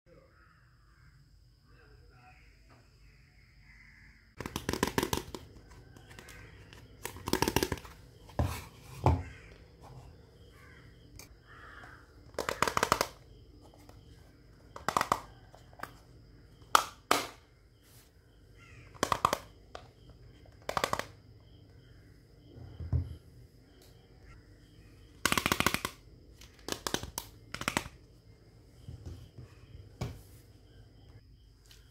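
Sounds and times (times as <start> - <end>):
plastic toy pieces clicking: 12.3 - 13.2, 14.8 - 15.3, 18.9 - 19.5, 20.6 - 21.2, 25.2 - 28.0.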